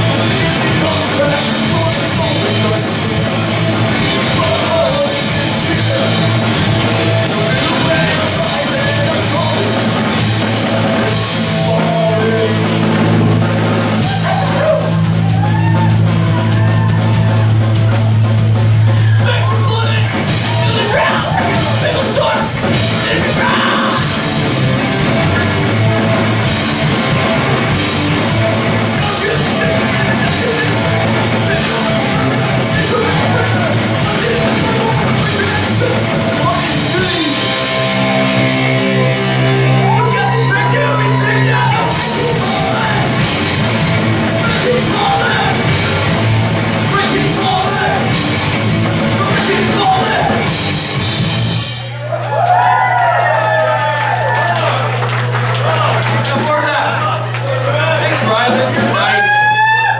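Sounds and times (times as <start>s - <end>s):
vocalist singing: 0.0s - 3.0s, 4.0s - 6.4s, 7.2s - 9.8s, 11.1s - 13.0s, 19.0s - 24.2s, 28.8s - 37.6s, 39.8s - 43.5s, 44.3s - 48.2s, 49.1s - 50.4s
distorted electric guitar: 0.0s - 52.0s
drum kit: 0.0s - 52.8s, 54.3s - 59.9s
bass guitar: 0.0s - 59.9s.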